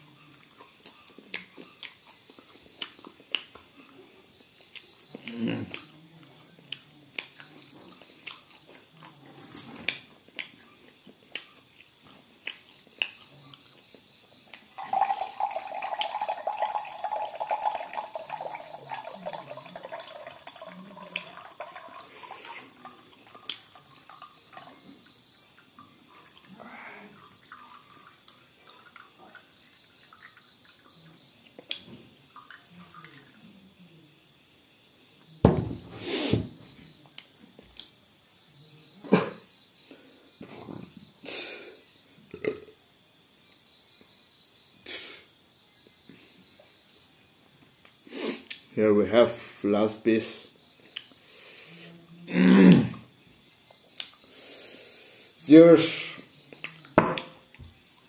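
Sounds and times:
liquid pouring into a cup: 14.6 - 31.1, 32.2 - 33.6.

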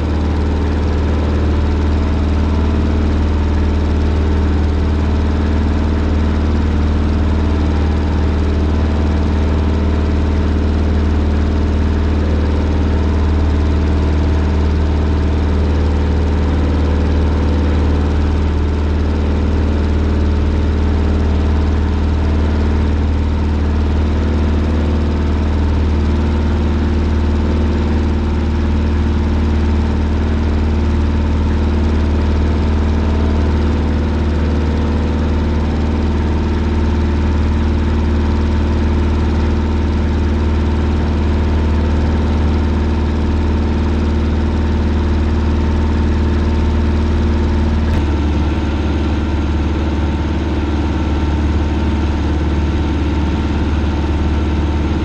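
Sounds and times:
propeller plane engine drone: 0.0 - 55.0.

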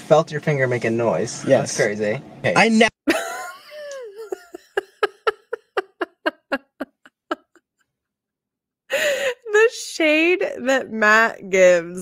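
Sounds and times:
woman laughing: 3.1 - 7.8, 8.9 - 9.5.

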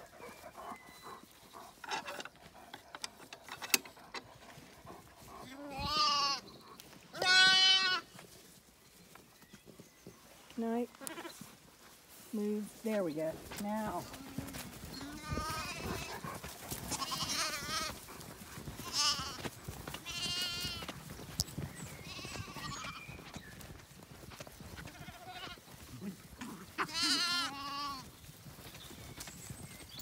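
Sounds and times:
lambs bleating: 5.6 - 6.4, 7.1 - 8.1, 13.8 - 16.2, 16.9 - 18.0, 18.8 - 19.4, 20.0 - 20.9, 22.0 - 23.0, 24.8 - 25.6, 26.4 - 28.0.

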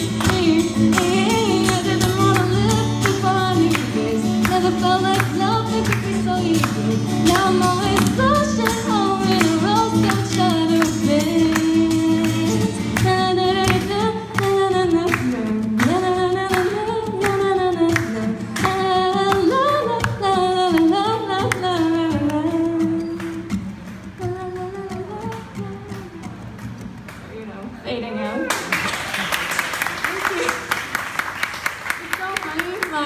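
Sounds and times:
woman singing: 0.0 - 23.6, 24.2 - 26.5
acoustic guitar strumming: 0.0 - 27.2.

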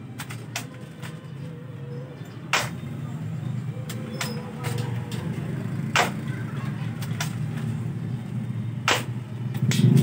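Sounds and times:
airsoft rifle shots: 8.9 - 10.0.

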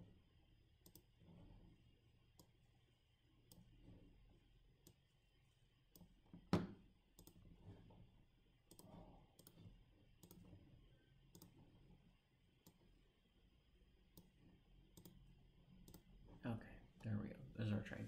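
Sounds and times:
computer mouse clicking: 0.8 - 2.7, 3.4 - 3.9, 4.8 - 5.1, 5.9 - 7.6, 8.7 - 13.0, 14.1 - 16.2.

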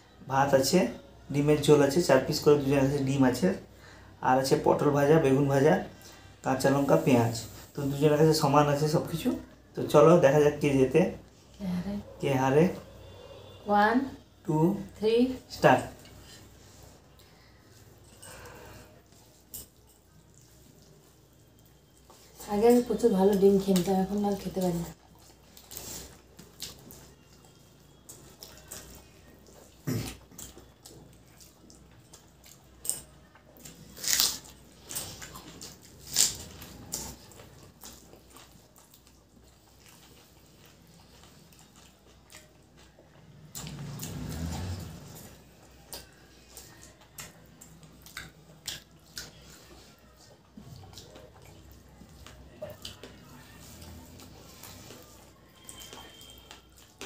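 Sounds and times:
chewing and wet mouth sounds: 14.8 - 57.0.

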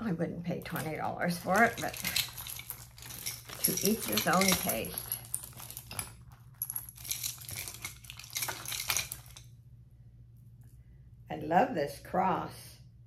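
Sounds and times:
metal jewelry clinking: 0.6 - 9.6.

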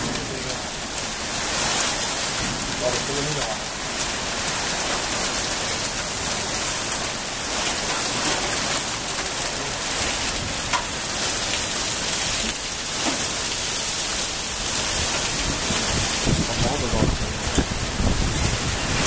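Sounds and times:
heavy rain pouring: 0.0 - 19.0
sharp ticks of raindrop impacts: 10.6 - 13.7.

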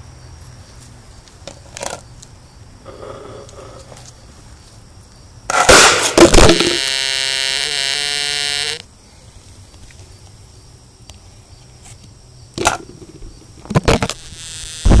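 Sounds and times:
firecracker bang and crackle: 5.5 - 6.9
steady buzzing tone: 5.5 - 8.9, 12.6 - 15.0.

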